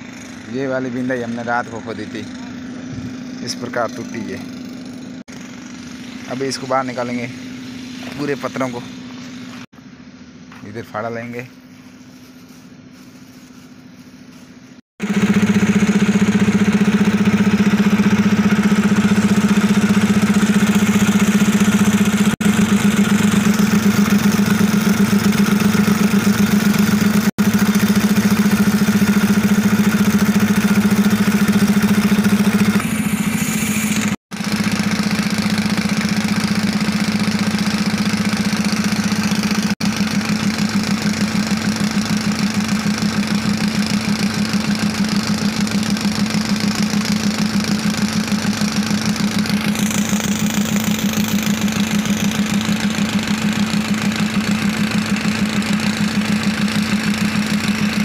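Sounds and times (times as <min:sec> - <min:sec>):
rock drill hammering: 0:15.1 - 0:58.0.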